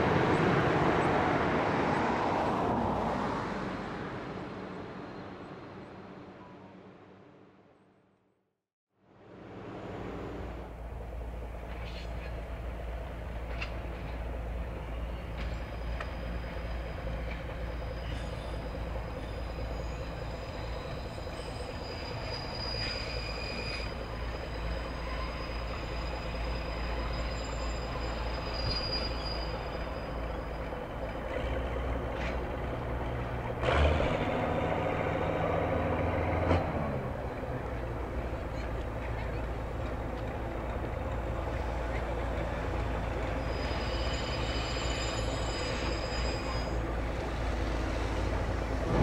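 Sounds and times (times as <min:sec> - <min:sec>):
train rumbling on track: 0:00.0 - 0:07.6, 0:09.2 - 0:49.0
high wheel squeal: 0:14.9 - 0:31.5, 0:42.8 - 0:49.0.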